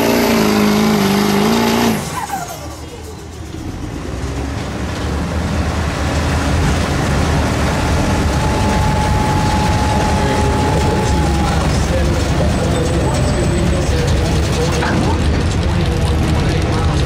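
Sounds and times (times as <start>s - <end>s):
pickup truck engine rumbling: 0.0s - 17.0s
high whistle: 8.0s - 11.7s.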